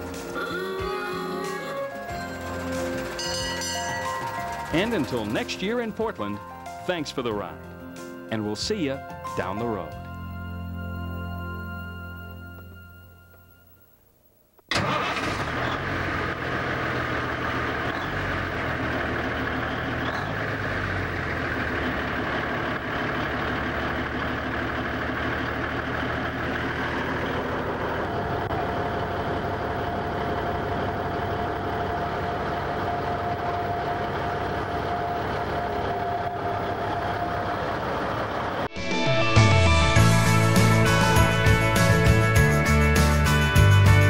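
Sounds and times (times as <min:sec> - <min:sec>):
heavy truck engine running: 0:00.0 - 0:13.4, 0:14.7 - 0:44.0
steady high tone: 0:38.7 - 0:42.4.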